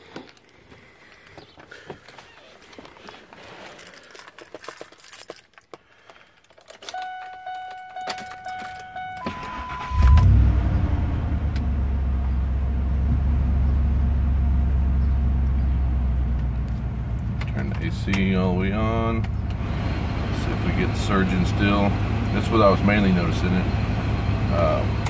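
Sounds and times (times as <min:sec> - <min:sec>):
keys rattling: 0:02.0 - 0:09.8
truck engine cranking and idling: 0:06.0 - 0:25.0
pulsed electronic warning chime: 0:07.0 - 0:10.4.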